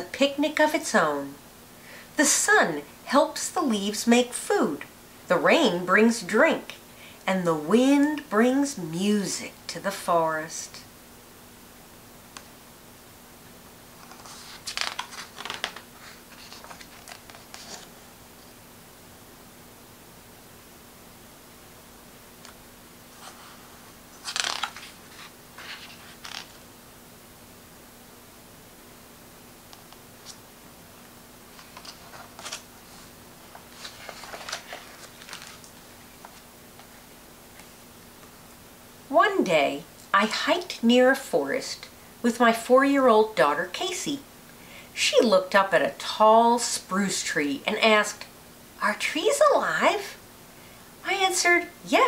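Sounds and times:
book page rustling: 0:14.0 - 0:18.1, 0:23.2 - 0:26.6, 0:31.5 - 0:37.0.

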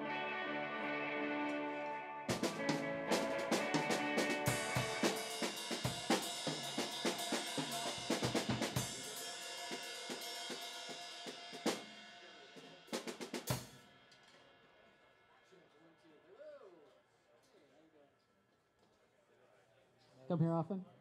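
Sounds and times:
rock band playing: 0:00.0 - 0:12.2
cymbal crash: 0:02.3 - 0:12.6.

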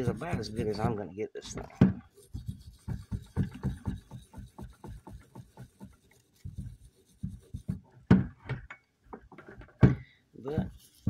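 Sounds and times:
wire brush scrubbing metal: 0:00.0 - 0:01.0, 0:02.0 - 0:07.9, 0:10.4 - 0:11.0.

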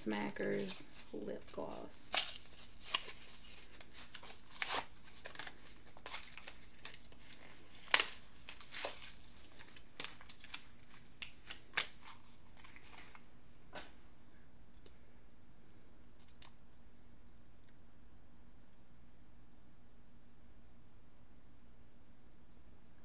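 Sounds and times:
plastic packaging crinkling: 0:00.2 - 0:13.2.

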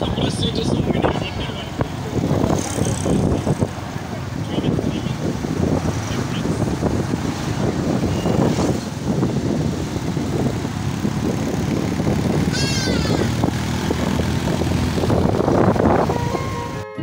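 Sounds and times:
motorcycle engine running: 0:00.0 - 0:16.8
road noise: 0:00.0 - 0:17.0
high-pitched squeak: 0:12.5 - 0:13.3.

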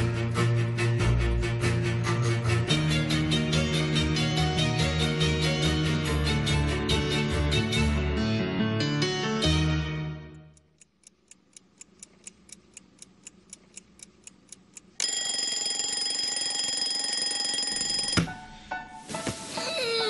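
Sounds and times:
clock ticking: 0:10.5 - 0:16.8
alarm clock ringing: 0:15.0 - 0:18.4.

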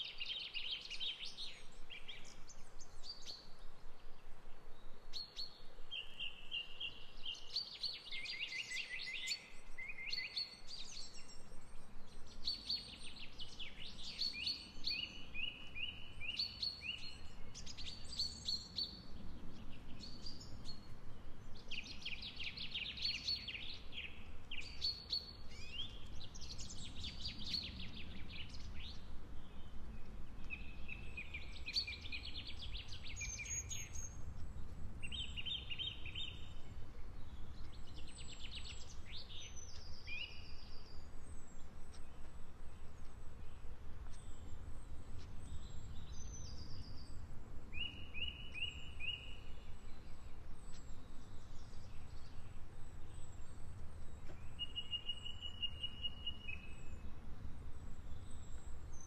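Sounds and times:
songbirds singing: 0:00.0 - 0:59.0
low steady background rumble: 0:25.4 - 0:48.2, 0:48.8 - 0:55.5, 0:56.1 - 0:59.0.

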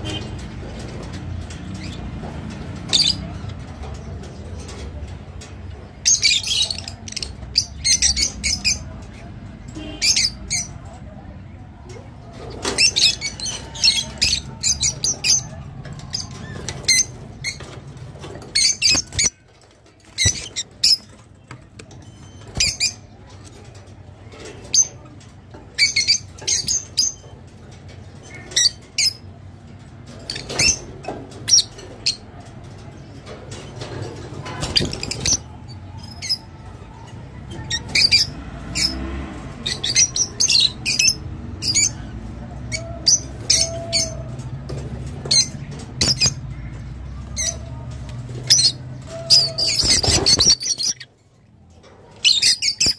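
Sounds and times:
lovebirds chirping: 0:12.3 - 0:29.3, 0:45.2 - 0:52.9.

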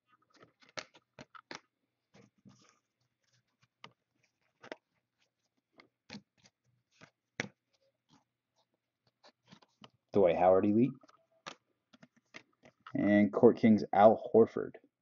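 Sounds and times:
trading cards flipped by hand: 0:00.2 - 0:10.0, 0:11.0 - 0:12.9.

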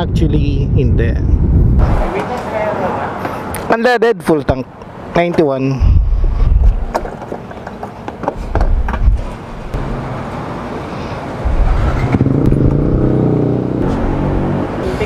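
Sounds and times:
fuel nozzle knocks and rustling: 0:06.9 - 0:09.3.

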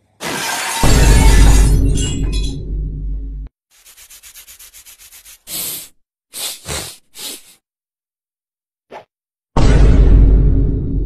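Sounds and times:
soft scratchy rubbing strokes: 0:03.8 - 0:05.5.

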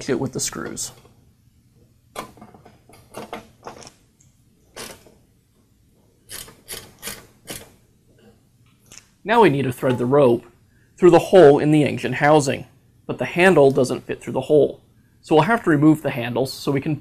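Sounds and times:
screwdriver scraping and clicking: 0:06.3 - 0:07.7.

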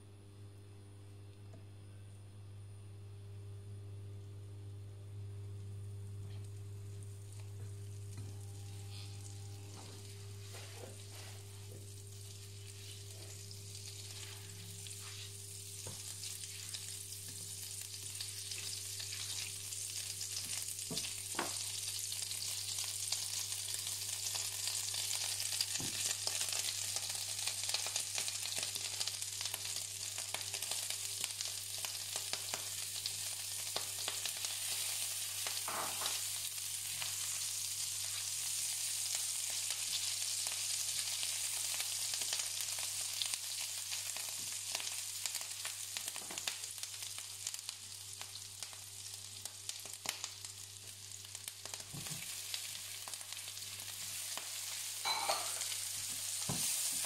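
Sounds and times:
steady low hum: 0:00.0 - 0:22.2
butter sizzling in a frying pan: 0:05.7 - 0:57.0.

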